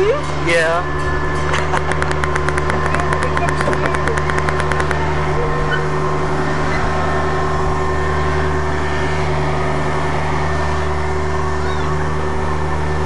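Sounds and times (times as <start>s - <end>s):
ride train engine droning: 0.0s - 13.0s.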